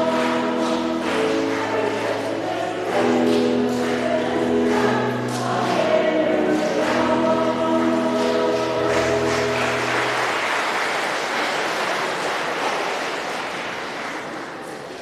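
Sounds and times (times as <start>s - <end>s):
applause: 0.0s - 5.8s, 6.5s - 15.0s
choir singing hymn chord: 0.0s - 10.5s.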